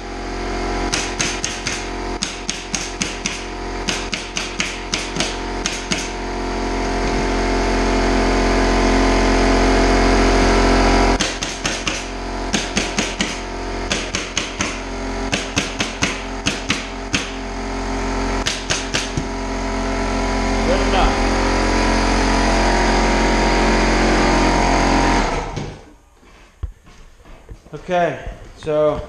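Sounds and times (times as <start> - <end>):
air compressor running: 0.0 - 27.6
pneumatic stapler firing: 0.9 - 6.2, 11.2 - 17.4, 18.4 - 19.3.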